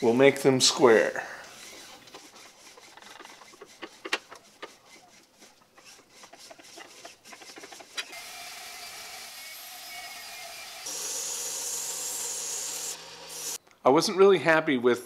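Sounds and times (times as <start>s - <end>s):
band saw whining: 1.4s - 13.6s
tap clicking and creaking in metal: 3.0s - 4.8s, 6.2s - 8.1s.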